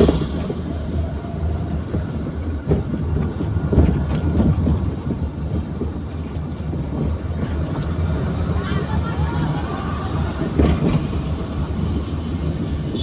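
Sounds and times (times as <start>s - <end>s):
car engine and road rumble: 0.0s - 13.0s
knocks and rattles: 1.8s - 8.0s.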